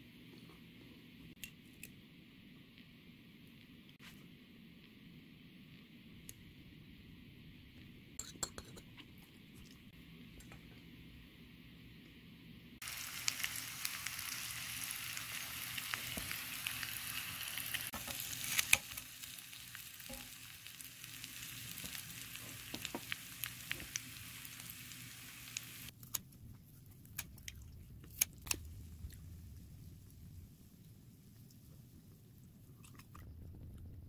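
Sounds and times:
food sizzling in a frying pan: 0:12.8 - 0:25.9.

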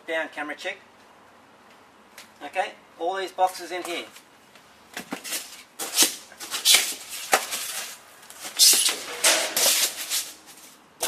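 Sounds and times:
cardboard and plastic rustling: 0:05.0 - 0:10.8.

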